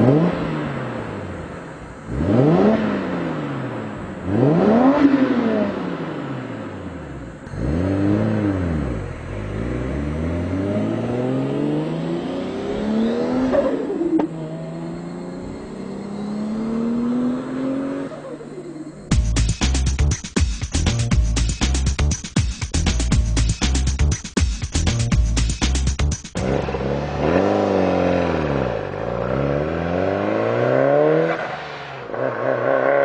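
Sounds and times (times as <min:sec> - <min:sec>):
car engine revving: 0:00.0 - 0:20.0, 0:26.3 - 0:33.0.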